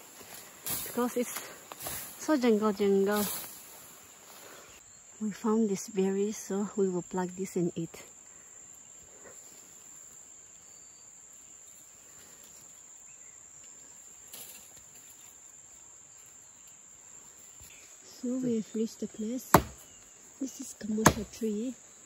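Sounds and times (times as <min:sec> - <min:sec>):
leaves rustling: 0:00.0 - 0:04.8, 0:08.8 - 0:18.0
insects singing drone: 0:00.0 - 0:22.0.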